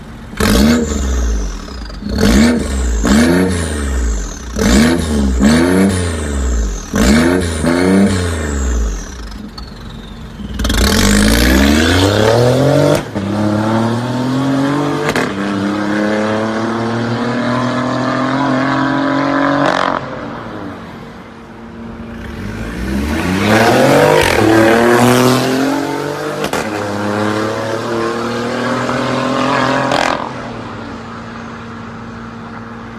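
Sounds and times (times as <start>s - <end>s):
car engine accelerating hard: 0.3s - 9.5s, 10.4s - 20.2s, 22.1s - 30.5s.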